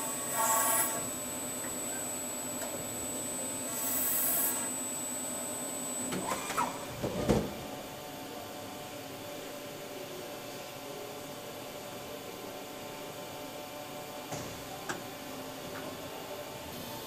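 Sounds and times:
milling machine whine: 0.0s - 8.8s.

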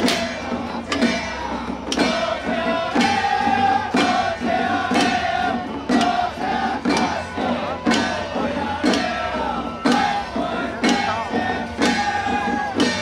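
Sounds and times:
held ritual melody: 0.0s - 13.0s
percussion strikes: 0.0s - 13.0s.

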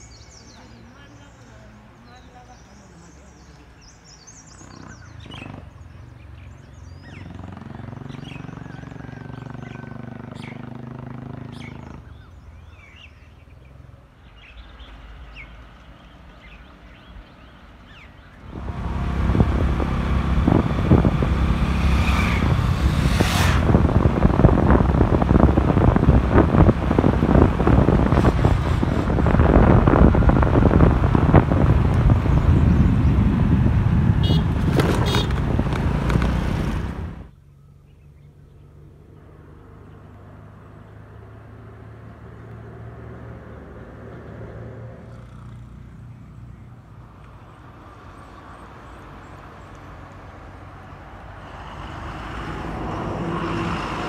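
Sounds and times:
birds chirping: 0.0s - 39.0s
scooter engine running: 18.4s - 37.3s
wind buffeting microphone: 18.4s - 37.3s.

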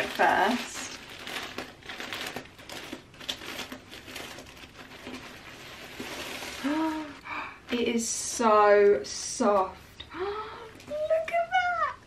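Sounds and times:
plastic packaging crinkling: 0.0s - 8.1s.

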